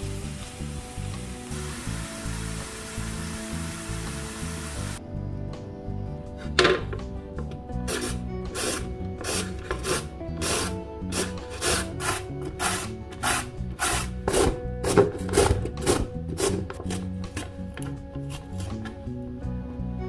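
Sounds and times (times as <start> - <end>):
carrot rasping on grater: 7.9 - 17.1.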